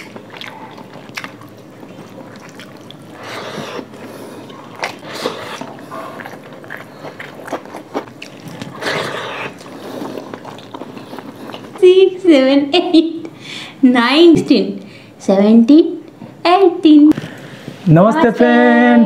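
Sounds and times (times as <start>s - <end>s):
people chewing: 0.0s - 12.2s.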